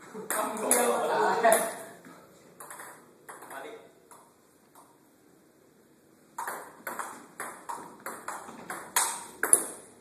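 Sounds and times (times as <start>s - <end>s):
table tennis ball clicking: 2.6s - 4.9s, 6.4s - 9.9s.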